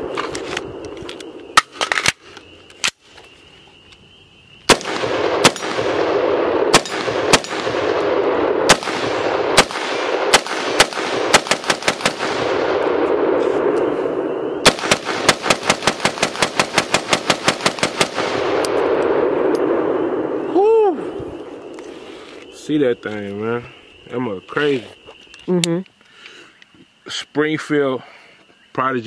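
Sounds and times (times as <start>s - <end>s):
rifle gunshots: 4.7s - 13.4s, 14.6s - 19.6s.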